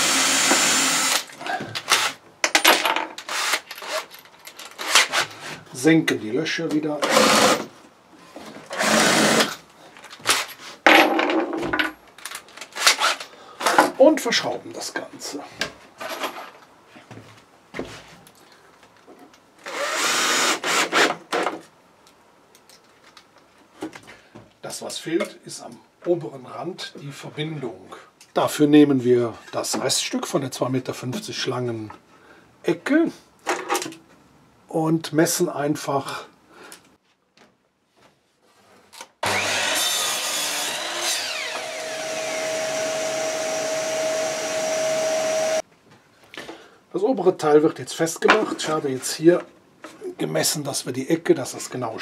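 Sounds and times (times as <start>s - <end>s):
cordless drill driving screw: 0.0s - 1.3s, 3.3s - 4.1s, 8.7s - 9.5s, 19.6s - 21.2s, 39.2s - 45.6s
mitre saw cutting wood: 7.0s - 7.7s, 8.7s - 9.5s, 19.7s - 21.2s, 39.2s - 45.6s.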